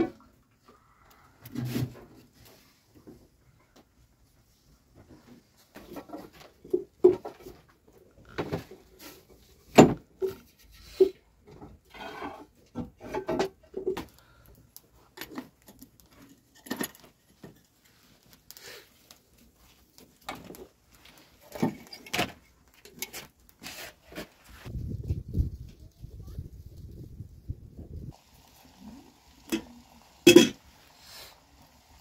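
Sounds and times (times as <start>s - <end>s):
metal kettle clinking and knocking: 30.3s - 30.6s.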